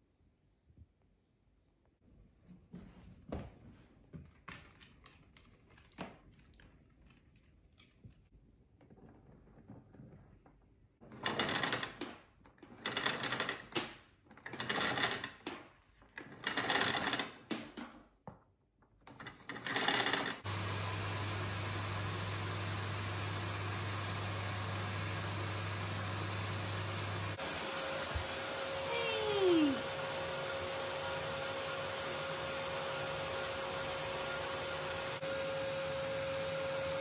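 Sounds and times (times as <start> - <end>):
vacuum cleaner motor running: 20.4 - 37.0.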